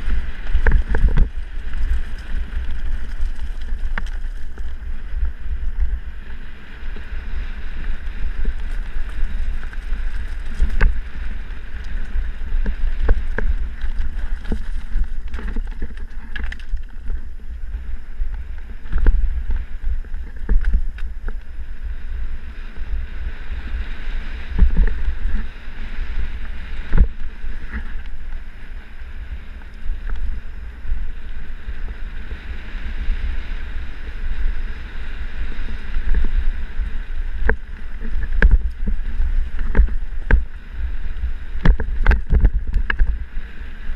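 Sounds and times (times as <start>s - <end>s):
bike knocks and rattles: 0.0s - 5.0s, 7.9s - 17.4s
wind rumbling on microphone: 0.0s - 43.9s.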